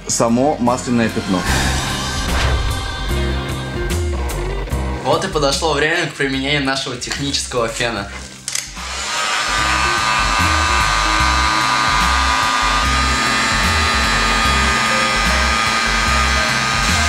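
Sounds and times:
background music with bass beat: 0:01.4 - 0:05.2
heat gun blowing hot air: 0:08.5 - 0:17.0.

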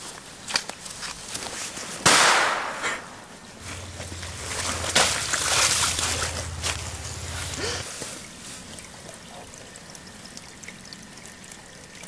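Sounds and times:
firecracker bang: 0:02.0 - 0:03.1
sharp pop: 0:02.0 - 0:03.1
faint scattered ticks: 0:08.4 - 0:12.0.

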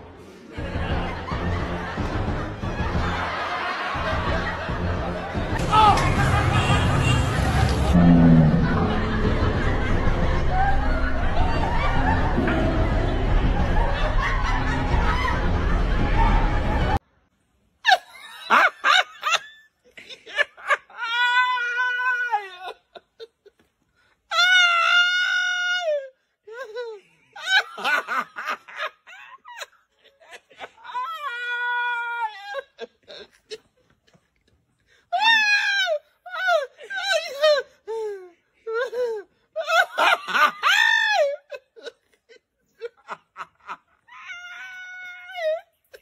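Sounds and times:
man laughing hard: 0:02.8 - 0:17.0, 0:26.6 - 0:30.8, 0:38.7 - 0:44.0.

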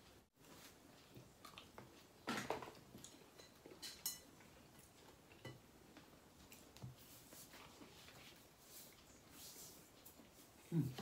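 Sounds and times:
cutlery on plates: 0:03.3 - 0:04.4.

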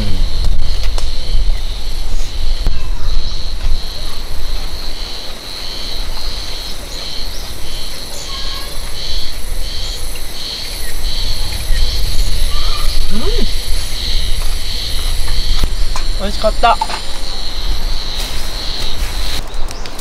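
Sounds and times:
insects chirring: 0:00.0 - 0:20.0
wind buffeting microphone: 0:00.0 - 0:20.0.

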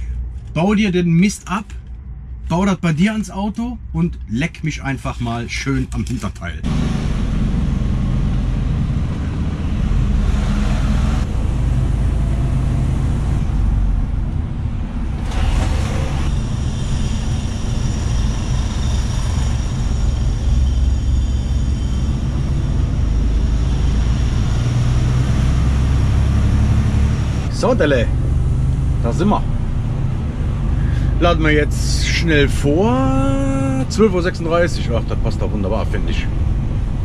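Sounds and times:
truck engine and road rumble: 0:00.0 - 0:37.0
faint high whine: 0:16.2 - 0:24.7.

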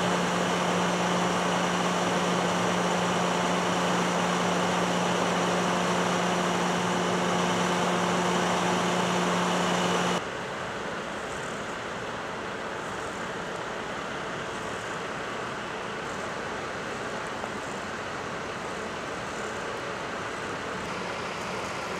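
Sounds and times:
machinery drone: 0:00.0 - 0:10.2.

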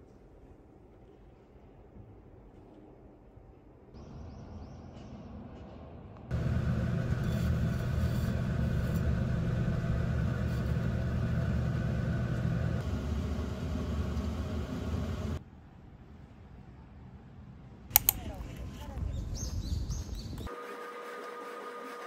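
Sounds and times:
vehicle drone: 0:06.3 - 0:15.4.

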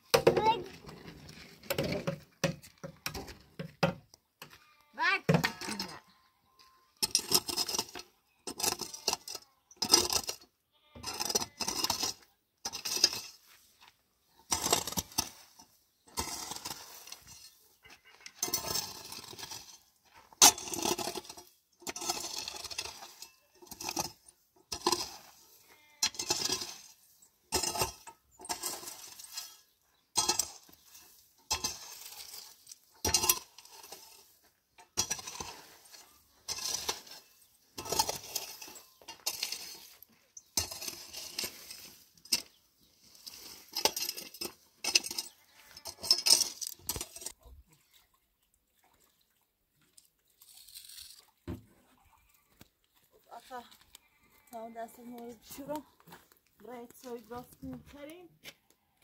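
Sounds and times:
hard objects clinking: 0:34.8 - 0:47.4.

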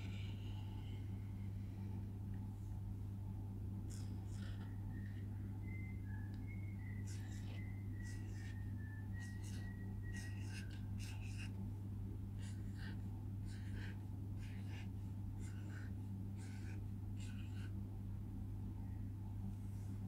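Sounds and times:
low electrical hum: 0:00.0 - 0:20.0
pen scratching on paper: 0:07.1 - 0:08.6, 0:09.2 - 0:11.6, 0:12.4 - 0:17.8.

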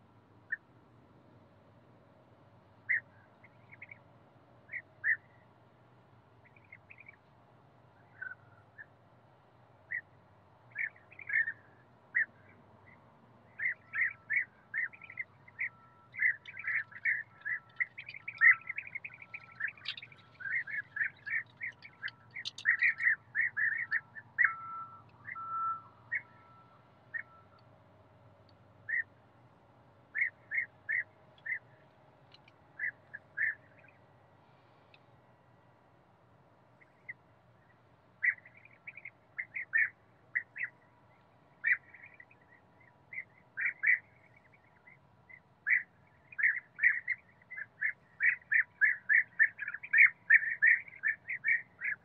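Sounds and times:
birds calling: 0:04.7 - 0:05.4, 0:10.7 - 0:27.5, 0:28.8 - 0:29.1, 0:30.1 - 0:34.0, 0:38.2 - 0:52.0.

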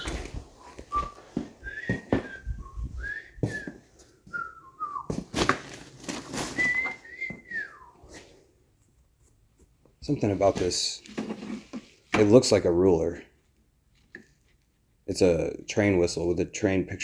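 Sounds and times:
person whistling a tune: 0:00.0 - 0:05.2, 0:06.5 - 0:08.0
objects knocking and clattering: 0:11.1 - 0:12.4.

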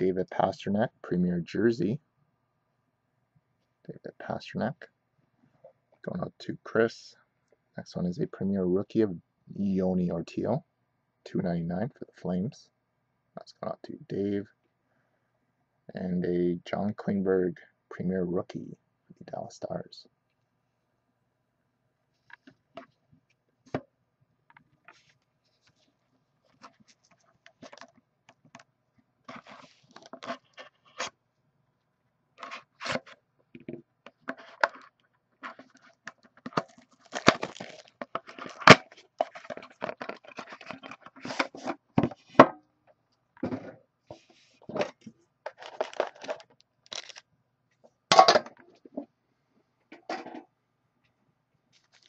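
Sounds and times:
shrink-wrap crinkling: 0:35.4 - 0:41.6, 0:45.5 - 0:47.2, 0:51.7 - 0:52.0.

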